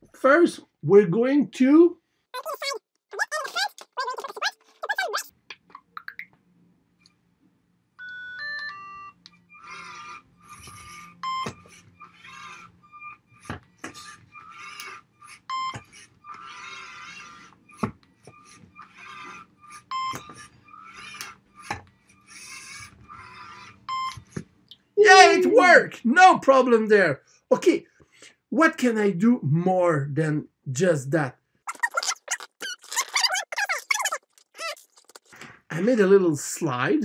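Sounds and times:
electric motors whirring: 0:09.3 - 0:24.4
stepped electronic beeps: 0:19.7 - 0:20.8.

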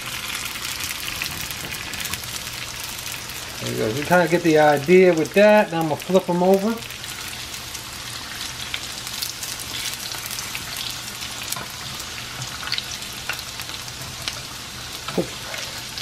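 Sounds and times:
oil sizzling with pops: 0:00.0 - 0:16.0.

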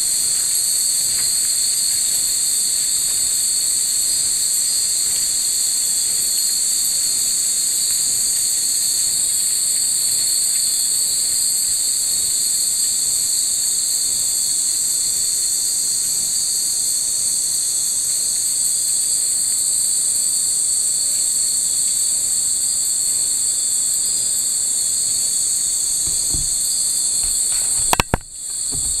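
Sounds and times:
insects chorus: 0:00.0 - 0:29.0
sharp knocks: 0:26.0 - 0:29.0.

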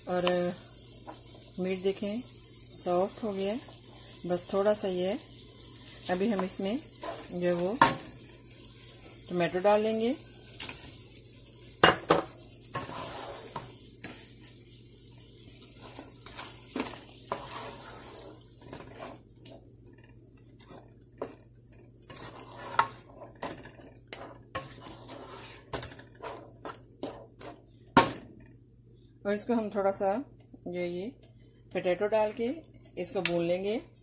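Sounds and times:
spatula clacking and scraping pot: 0:06.3 - 0:08.0, 0:11.8 - 0:14.2, 0:15.8 - 0:19.3, 0:22.0 - 0:27.7.

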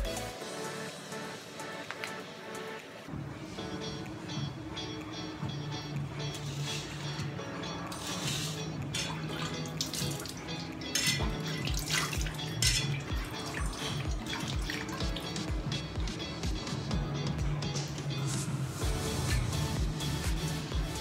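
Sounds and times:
background music with steady beat: 0:00.0 - 0:21.0
water splashing: 0:08.0 - 0:15.3.

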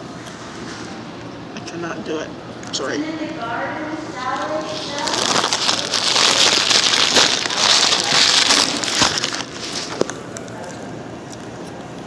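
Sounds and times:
paper wrapper crinkling: 0:04.2 - 0:10.2.

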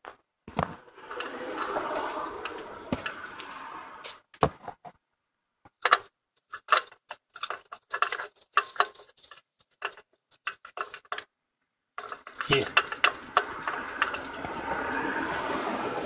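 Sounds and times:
steady rushing noise: 0:00.8 - 0:04.1, 0:12.6 - 0:16.0
clicks and knocks of parts handled: 0:05.6 - 0:11.3, 0:12.0 - 0:15.0.

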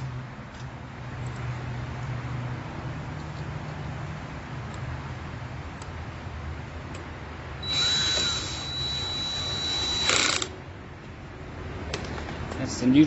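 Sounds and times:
cordless drill motor whine: 0:07.6 - 0:10.5.

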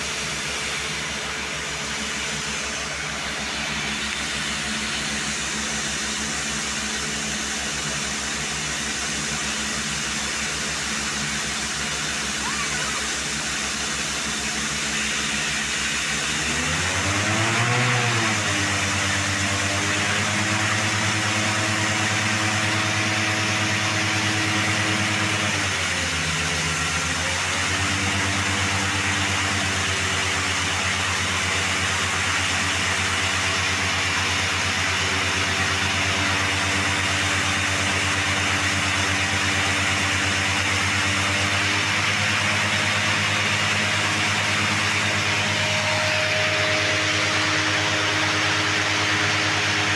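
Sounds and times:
water and compressed air rushing: 0:00.0 - 0:17.4
machine engine running: 0:00.0 - 0:49.9.

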